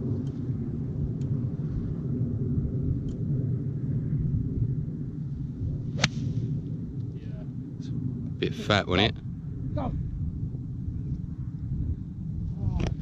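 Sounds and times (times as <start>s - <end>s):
wind buffeting microphone: 0.0s - 13.0s
golf club striking ball: 6.0s - 6.4s.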